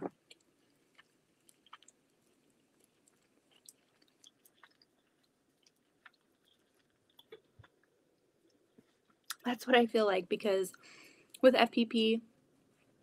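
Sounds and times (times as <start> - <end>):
chewing candy: 0.0 - 9.4.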